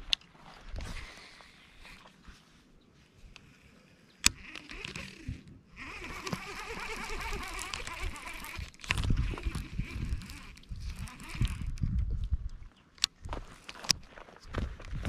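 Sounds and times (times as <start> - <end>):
fishing reel gear whir: 3.4 - 12.0
fishing reel click: 4.2 - 11.8.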